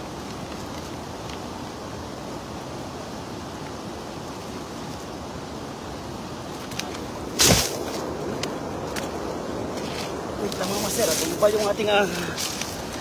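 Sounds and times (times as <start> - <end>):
loud rustle or bump: 7.3 - 8.1.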